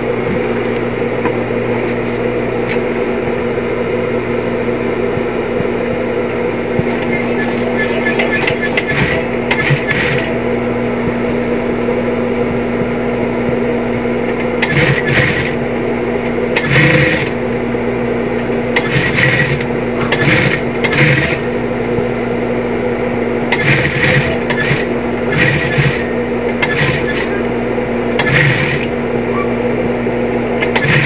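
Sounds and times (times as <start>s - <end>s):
motor hum: 0.0s - 31.0s
sewing machine stitching: 7.4s - 10.4s, 14.6s - 15.6s, 16.6s - 17.4s, 18.7s - 21.5s, 23.5s - 27.4s, 28.2s - 28.9s, 30.6s - 31.0s.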